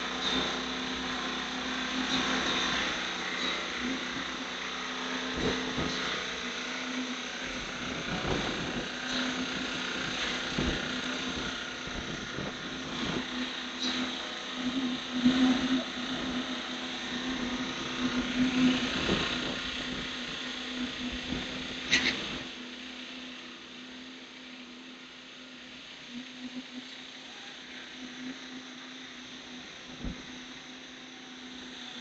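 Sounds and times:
machinery engine humming: 0.0 - 32.0
hiss: 5.1 - 24.4.

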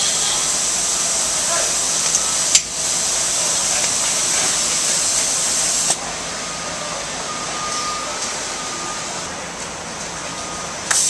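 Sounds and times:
spray guns hissing: 0.0 - 6.0
machine noise with faint whine: 0.0 - 11.0.

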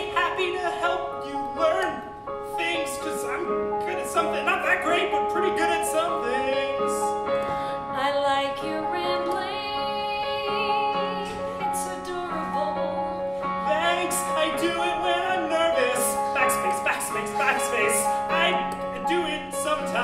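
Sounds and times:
digital keyboard chords: 0.0 - 20.0
person singing with vibrato: 5.9 - 16.6.

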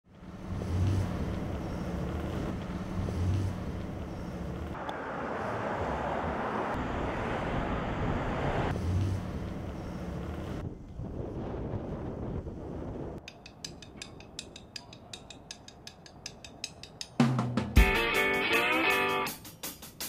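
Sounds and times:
traffic rushing: 0.1 - 13.2
wind buffeting microphone: 9.4 - 13.3.

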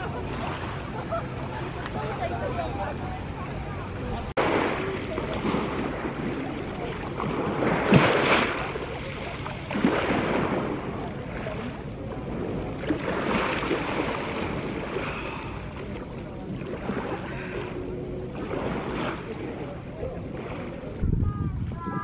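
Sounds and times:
small waves washing: 0.0 - 22.0
water splashing around legs: 4.1 - 21.0.

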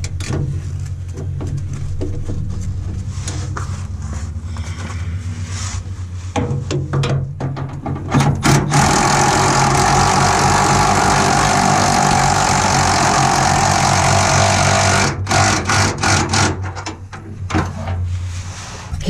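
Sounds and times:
low mechanical hum: 0.0 - 19.0
power tool whirring: 8.5 - 16.6.

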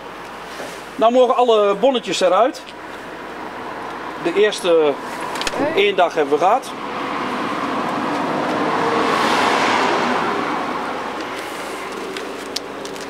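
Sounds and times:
vehicle driving past: 4.9 - 12.0.

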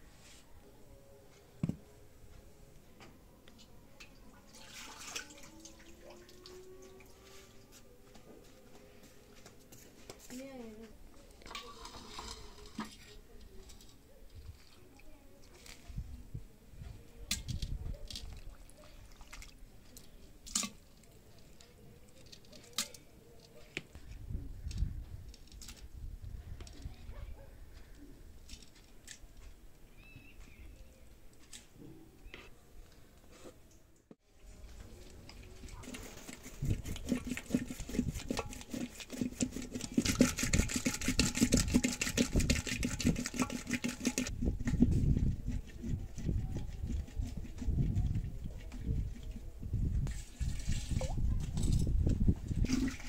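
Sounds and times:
churn sloshing and thumping yogurt: 35.0 - 49.4, 52.4 - 53.0.

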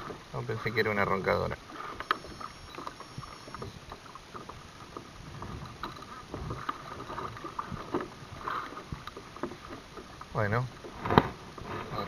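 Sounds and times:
water lapping against hull: 0.0 - 12.0
small irregular clicks and knocks: 1.8 - 10.3.

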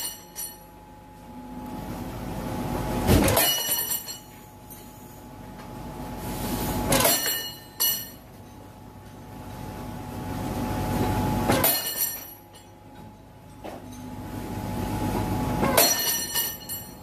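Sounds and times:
metallic clanks with ringing: 0.0 - 0.7, 3.3 - 5.0, 7.0 - 8.6, 11.6 - 14.1, 15.6 - 17.0.

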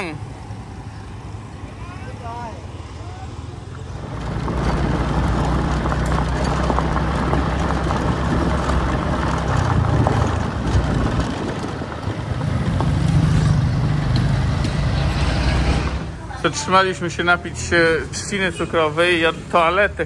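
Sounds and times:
motorbike engine hum: 0.0 - 19.5
rushing wind noise: 3.9 - 16.3.

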